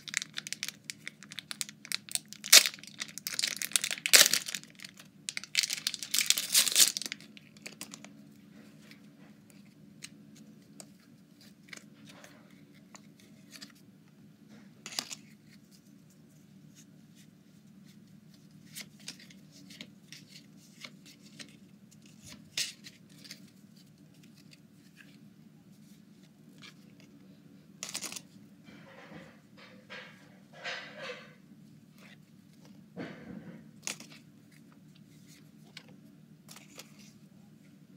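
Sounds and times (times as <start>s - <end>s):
wrapper crinkling and tearing: 0.0s - 8.1s, 27.8s - 28.2s
faint steady hum: 0.0s - 37.9s.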